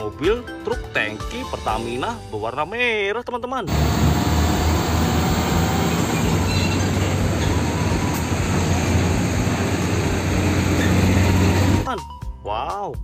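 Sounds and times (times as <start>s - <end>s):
diesel truck engine running: 3.7s - 11.9s.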